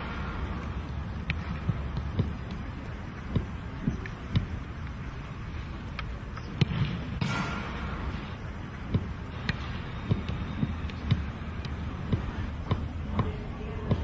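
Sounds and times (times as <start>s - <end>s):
low outdoor rumble: 0.0s - 14.0s
boot kicking football: 3.3s - 4.6s.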